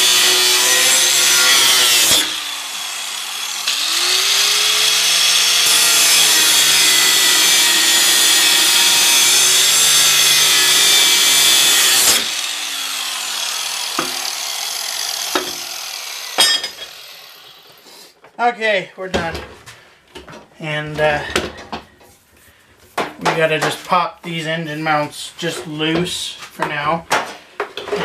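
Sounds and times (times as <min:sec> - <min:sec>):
angle grinder cutting steel: 0:00.0 - 0:18.0
sharp knocks: 0:14.0 - 0:14.2.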